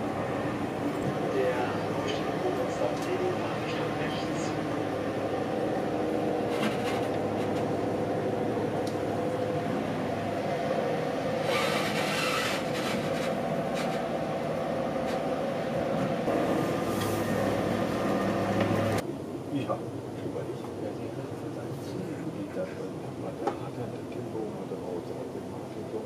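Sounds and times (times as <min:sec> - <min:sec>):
train wheels rumbling on rails: 0:00.0 - 0:19.0
constant hum: 0:00.0 - 0:26.0.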